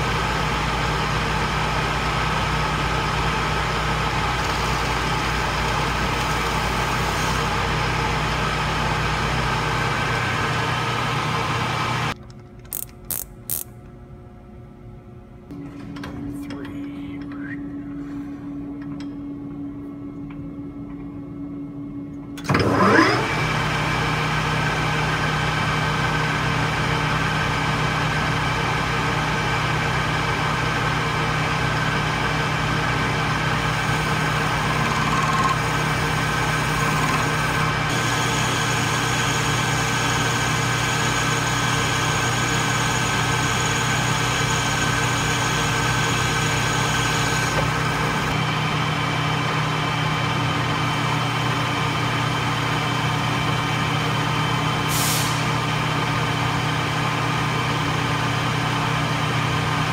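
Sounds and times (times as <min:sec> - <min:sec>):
lathe cutting metal shaft: 0:00.0 - 0:12.1, 0:27.4 - 0:54.4
lathe motor whining: 0:00.0 - 0:13.6, 0:22.5 - 0:54.8.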